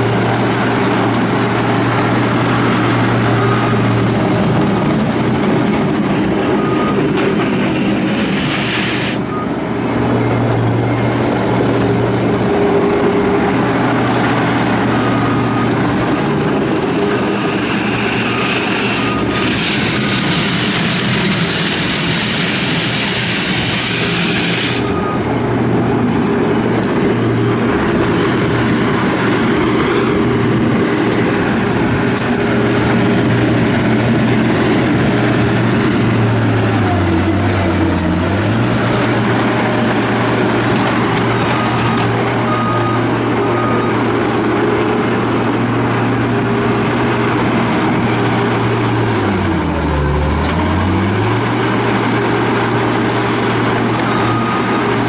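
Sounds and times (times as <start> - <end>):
diesel loader engine running: 0.0 - 55.0
rushing hiss: 8.2 - 9.3, 17.6 - 24.9.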